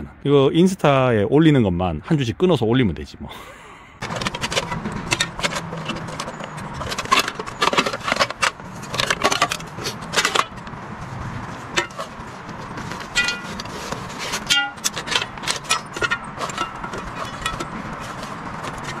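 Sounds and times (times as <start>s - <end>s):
gear clinking and knocking: 4.0s - 10.8s, 11.6s - 19.0s.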